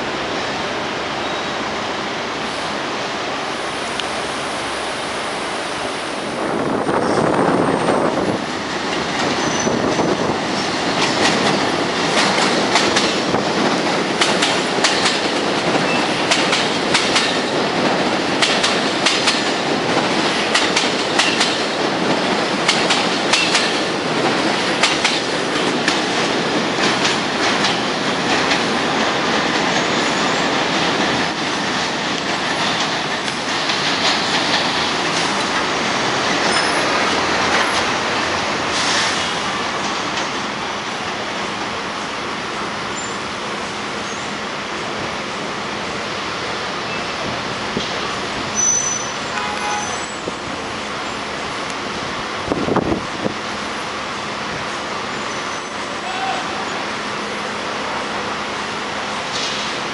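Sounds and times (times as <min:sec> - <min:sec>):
train rumble: 0:00.0 - 0:59.9
wheels clacking over rail joints: 0:08.7 - 0:40.5.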